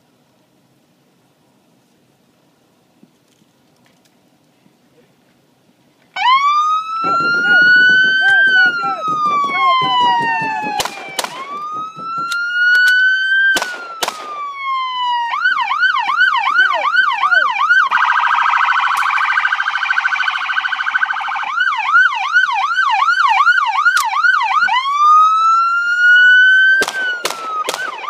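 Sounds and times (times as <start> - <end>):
police siren cycling tones: 6.2 - 28.0
gunshots: 7.0 - 14.6, 26.8 - 28.0.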